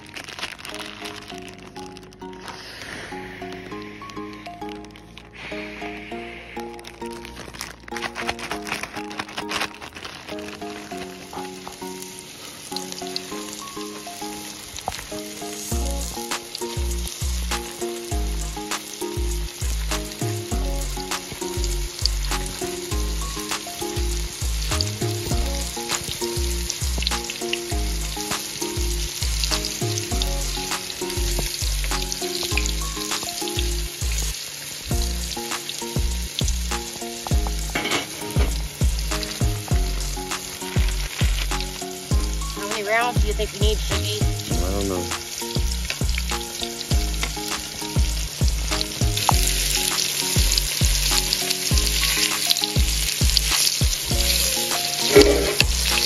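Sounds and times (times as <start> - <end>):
oil sizzling with pops: 0.0 - 56.0
background music with bass beat: 15.7 - 56.0.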